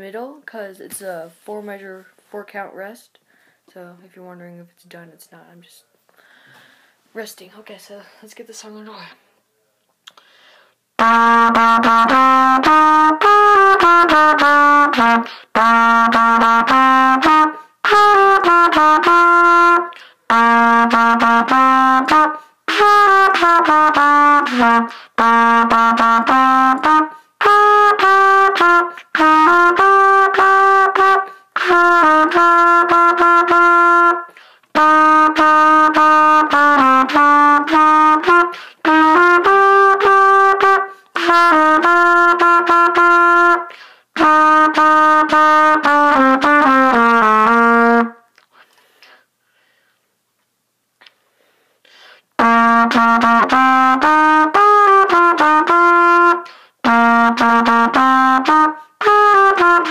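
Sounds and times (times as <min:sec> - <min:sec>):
solo trumpet melody: 0:11.0 - 0:48.3, 0:52.4 - 0:59.9.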